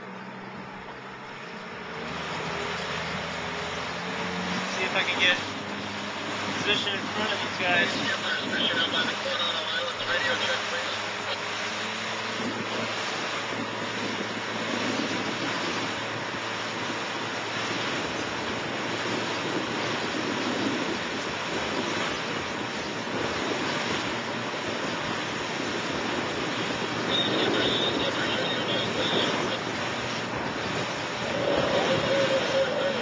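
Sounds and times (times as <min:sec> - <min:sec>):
boat wake churning: 0:00.0 - 0:33.0
wind buffeting microphone: 0:11.7 - 0:33.0.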